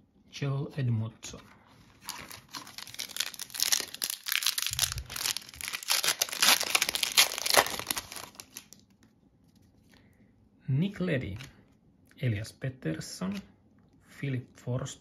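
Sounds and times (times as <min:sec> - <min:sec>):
foil wrapper tearing and crinkling: 0:02.0 - 0:08.8.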